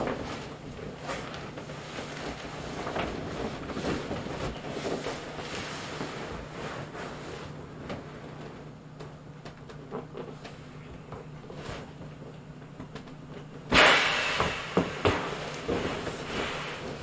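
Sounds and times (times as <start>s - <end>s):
plastic raincoat rustling: 0.0s - 8.6s.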